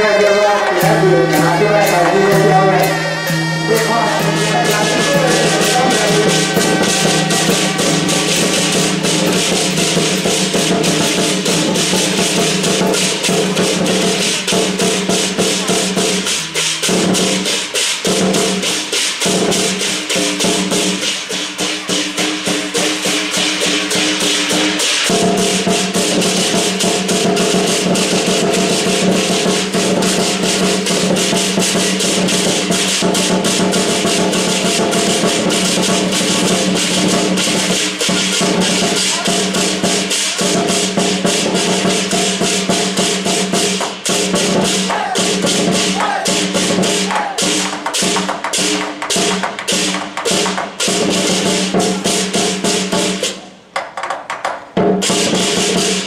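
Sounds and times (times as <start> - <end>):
hand cymbals clashing: 0.0 - 53.4
barrel drum beating: 0.6 - 56.0
steady ringing tones: 0.8 - 11.0.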